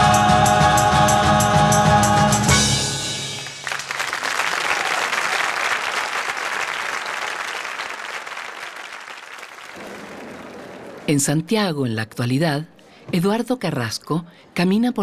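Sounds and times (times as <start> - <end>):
choir singing: 0.0 - 3.3
audience applauding: 3.4 - 11.1.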